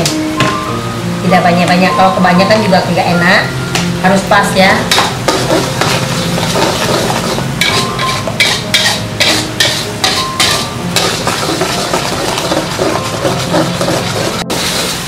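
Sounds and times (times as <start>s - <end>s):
paste frying in oil sizzling: 3.9s - 15.0s
metal spatula scraping a wok: 4.9s - 15.0s.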